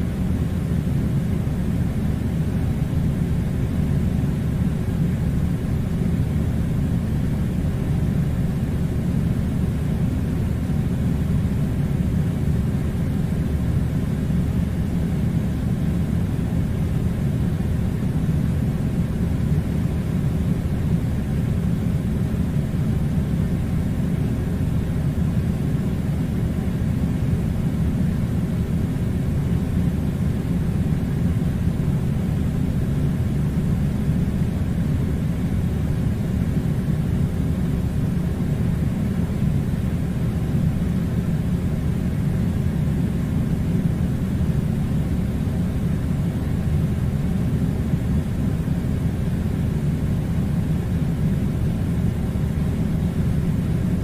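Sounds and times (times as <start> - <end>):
air conditioner running: 0.0 - 54.0.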